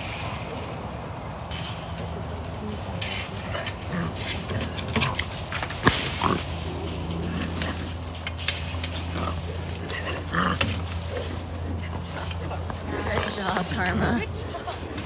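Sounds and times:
bobcat growling and hissing: 0:03.1 - 0:15.0.

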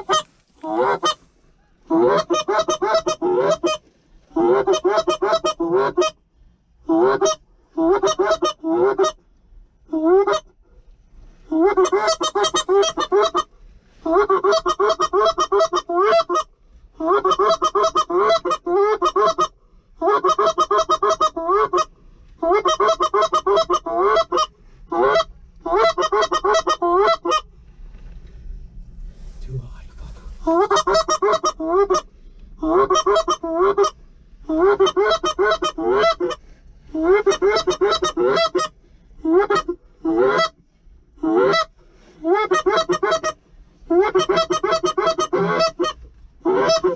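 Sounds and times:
goose calls honking: 0:01.9 - 0:06.2, 0:11.5 - 0:27.4, 0:30.4 - 0:40.6, 0:41.2 - 0:46.9.

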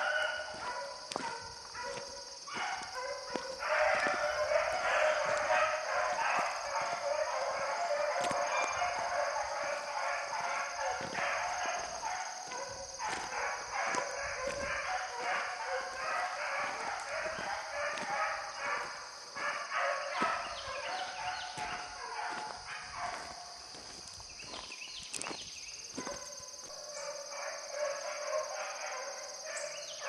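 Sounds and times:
dogs baying and barking: 0:00.0 - 0:30.0.

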